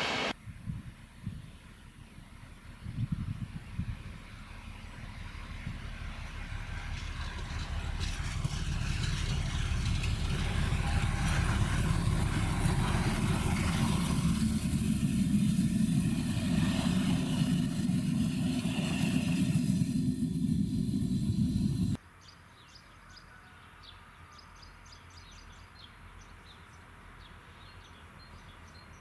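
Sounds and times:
diesel locomotive engine rumble: 0.0 - 22.0
train coaches rolling: 4.6 - 22.0.

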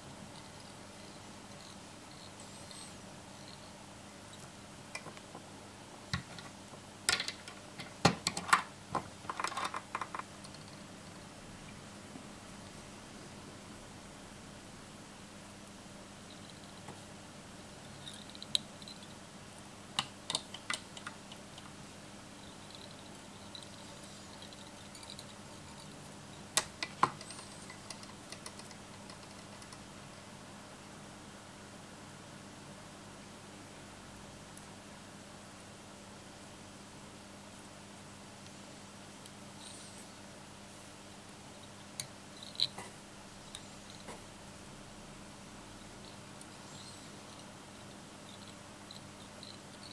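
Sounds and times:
faint steady hum: 0.0 - 49.9.

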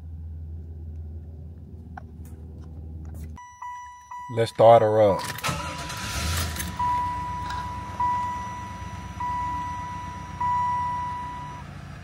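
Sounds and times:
car engine idling hum: 0.0 - 12.0
dashboard warning chime dinging: 3.4 - 11.7.

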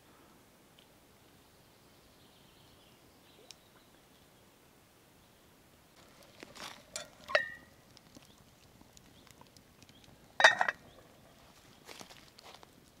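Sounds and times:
metal cookware clattering: 6.8 - 7.6, 10.4 - 10.8.

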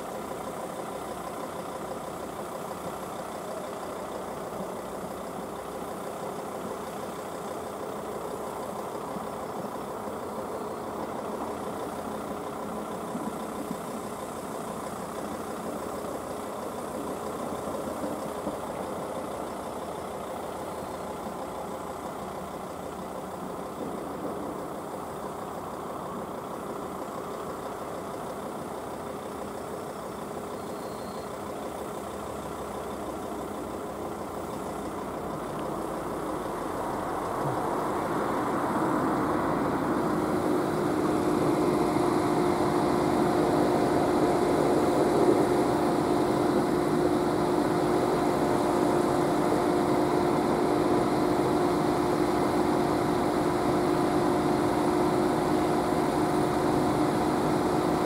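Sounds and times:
engine idling: 0.0 - 58.0.

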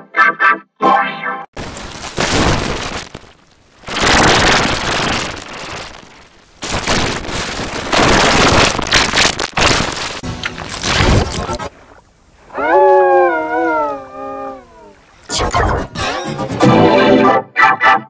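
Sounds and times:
harsh distorted noise: 1.6 - 11.9, 15.3 - 16.9.

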